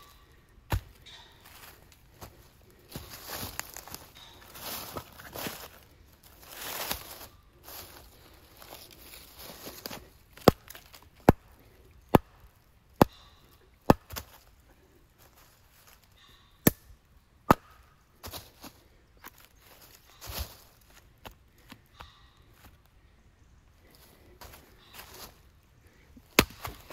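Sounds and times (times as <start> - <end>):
axe chopping wood: 0.7 - 1.7, 10.4 - 11.5, 13.0 - 14.4, 17.5 - 17.8, 26.2 - 26.9.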